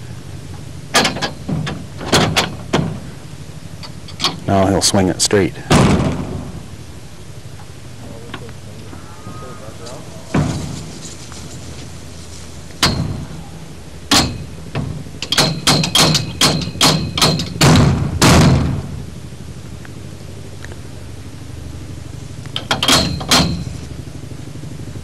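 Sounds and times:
steel frame clanking: 0.9s - 3.2s, 3.8s - 4.5s, 12.6s - 18.9s, 22.6s - 23.9s.

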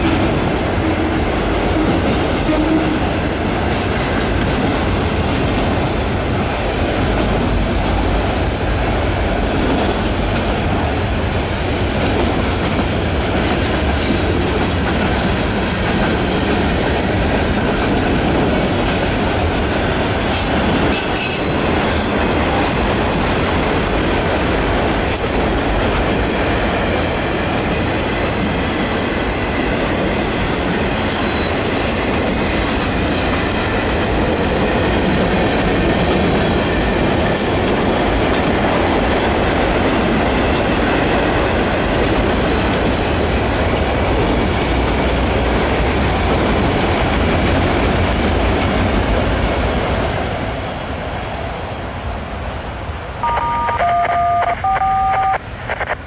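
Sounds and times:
train wheels rumbling on rail: 0.0s - 53.2s.

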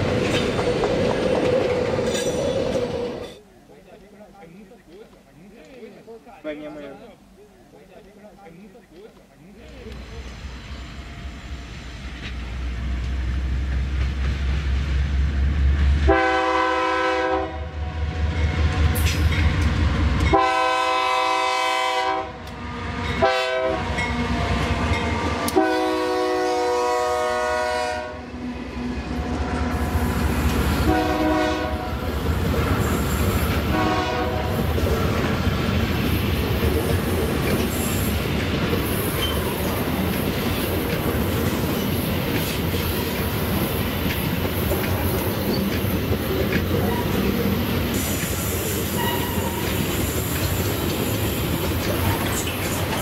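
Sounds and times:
diesel train engine rumble: 8.4s - 53.0s
train air horn blasts: 16.0s - 18.0s, 20.3s - 24.0s, 25.0s - 28.3s, 30.7s - 32.0s, 33.7s - 34.7s, 48.0s - 50.2s.

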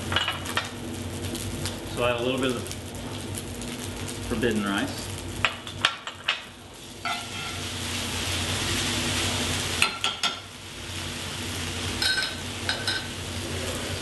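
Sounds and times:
grains sizzling in fat: 0.0s - 14.0s
spoon clinking against pan: 12.0s - 13.1s.

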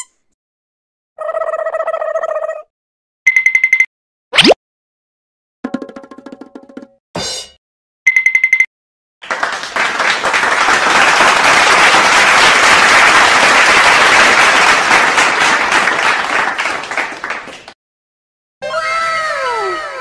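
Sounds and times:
crowd clapping: 9.2s - 17.8s.

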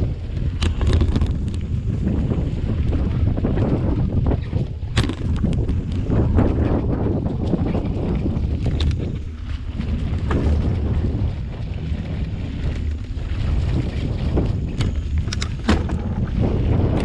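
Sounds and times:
wind buffeting microphone: 0.0s - 17.0s
bike clicks and rattles: 0.3s - 2.4s, 3.4s - 10.7s, 14.3s - 17.0s.

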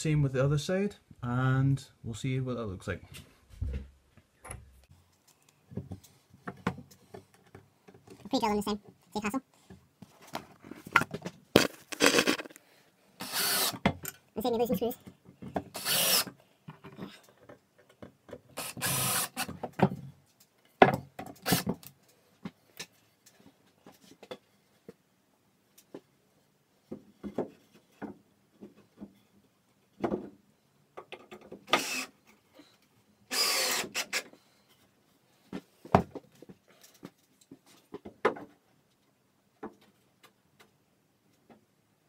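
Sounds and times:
knocks handling wood and tools: 5.7s - 8.3s, 9.7s - 12.6s, 19.5s - 20.2s, 20.8s - 23.0s, 26.8s - 30.4s, 31.0s - 31.9s, 35.5s - 38.7s
power drill into wood: 11.6s - 12.5s, 13.2s - 13.8s, 15.7s - 16.3s, 18.6s - 19.5s, 21.4s - 21.8s, 31.7s - 32.2s, 33.3s - 34.3s.

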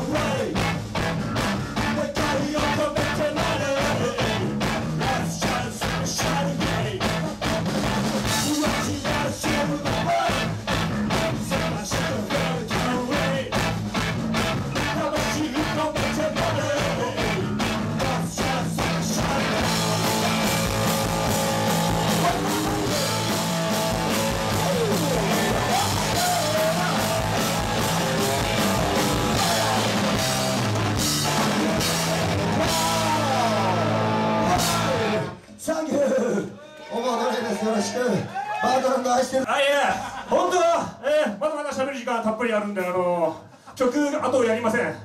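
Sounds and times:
man singing: 0.0s - 0.8s, 1.7s - 7.2s, 8.2s - 13.8s, 14.7s - 23.4s, 24.1s - 30.3s, 31.2s - 35.4s
drums pounding beat: 0.0s - 35.2s
distorted electric guitars: 0.0s - 35.5s.

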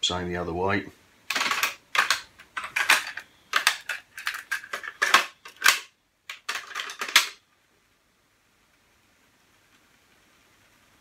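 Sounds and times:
cassette being handled: 1.3s - 7.4s.

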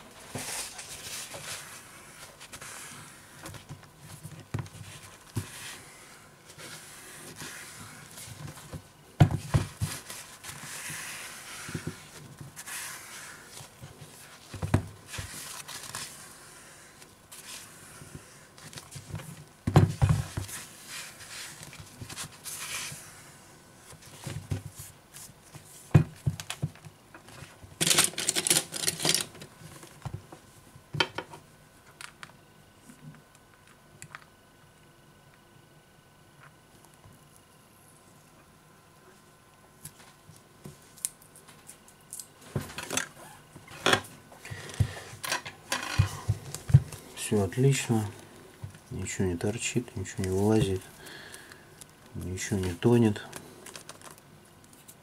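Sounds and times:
tissue wiping glass: 10.0s - 13.6s
tissue crinkling: 53.6s - 54.9s.

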